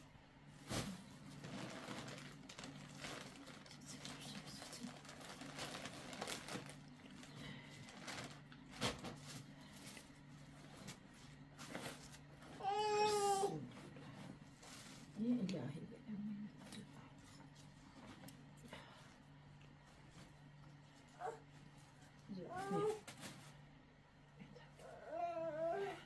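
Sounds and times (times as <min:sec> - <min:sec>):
faint low hum: 0:00.0 - 0:26.0
cloth and plastic bags rustling: 0:00.5 - 0:15.7, 0:19.8 - 0:23.7.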